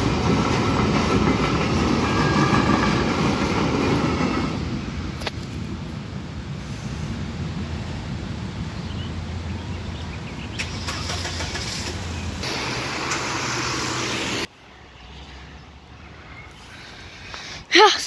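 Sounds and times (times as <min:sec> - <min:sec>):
car engines idling: 0:05.4 - 0:14.5
tyre hiss on wet road: 0:06.4 - 0:08.5, 0:10.5 - 0:14.5, 0:16.6 - 0:17.8.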